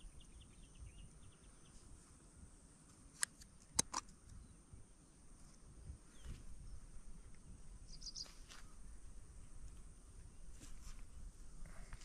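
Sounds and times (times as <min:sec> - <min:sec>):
faint high bird chirps: 0:00.0 - 0:02.0, 0:05.7 - 0:08.9
faint steady high hiss: 0:00.0 - 0:12.0
sharp clicks: 0:03.1 - 0:04.4.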